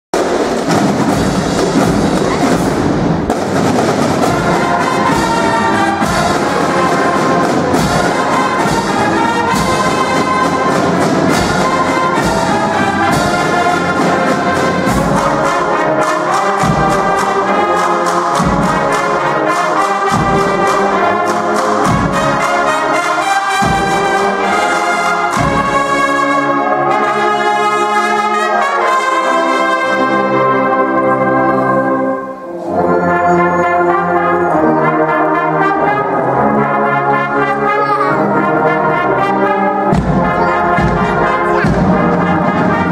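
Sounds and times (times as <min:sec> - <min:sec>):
brass band playing: 0:00.1 - 0:42.9
strong regular beat: 0:39.9 - 0:42.9.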